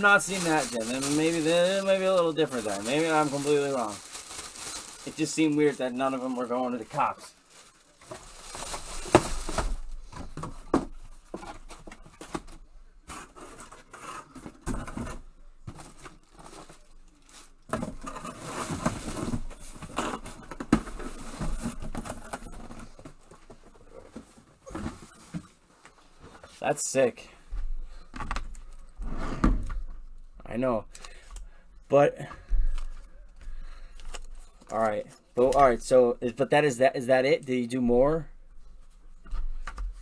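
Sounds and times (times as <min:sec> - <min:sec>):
cardboard rustling and scraping: 0:00.0 - 0:25.5.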